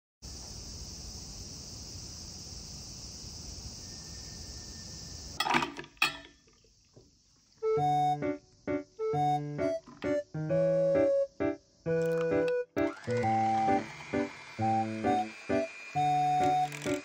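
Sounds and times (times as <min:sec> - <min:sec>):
insects chirring: 0:00.2 - 0:17.0
piano music: 0:07.6 - 0:17.0.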